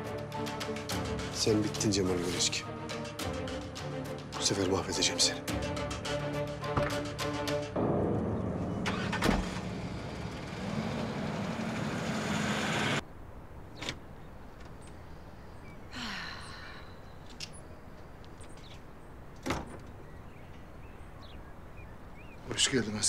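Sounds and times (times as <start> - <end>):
outdoor ambience: 0.0 - 23.0
car driving: 7.8 - 13.0.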